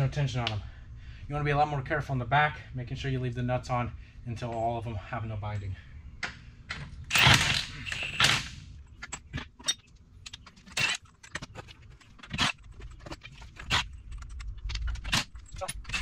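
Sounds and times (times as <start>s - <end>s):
impact wrench spinning nuts: 7.1s - 13.9s
metallic clinks: 9.1s - 16.0s.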